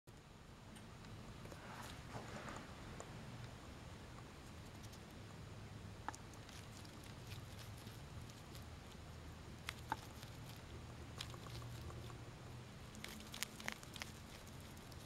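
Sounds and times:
faint low hum: 0.1s - 15.0s
hedgehog chewing clicks: 9.6s - 12.2s, 12.8s - 15.0s.

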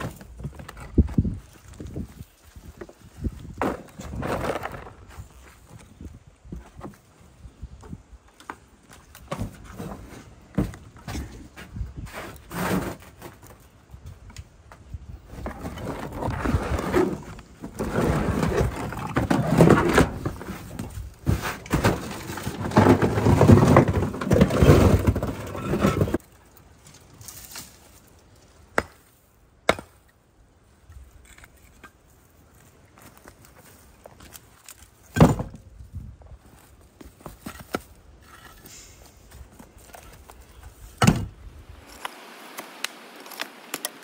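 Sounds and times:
concrete and rock scraping and clattering: 3.4s - 5.5s, 15.3s - 26.2s.

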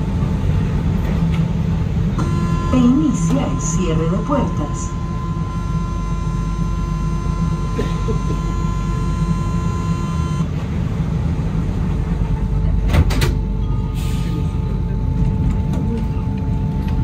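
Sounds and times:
train low hum: 0.0s - 17.0s
electronic door warning tone: 2.2s - 10.5s.

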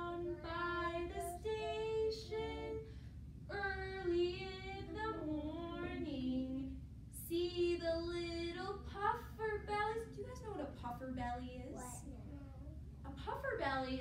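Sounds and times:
woman and children singing: 0.0s - 2.9s, 3.5s - 9.6s.

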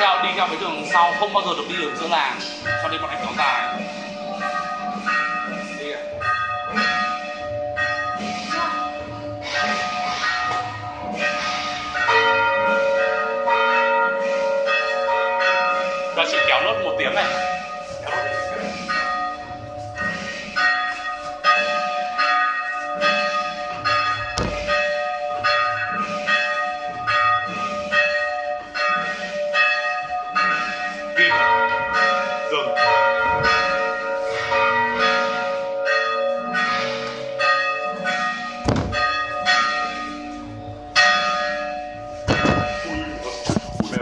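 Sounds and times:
church bells tolling: 0.0s - 44.0s
low thuds: 24.2s - 24.9s, 38.6s - 39.4s, 42.2s - 44.0s.

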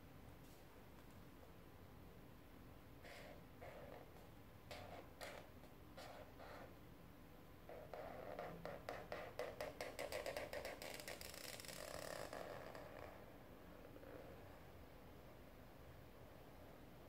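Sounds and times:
marker scratching on paper: 3.0s - 6.7s, 7.7s - 11.6s.

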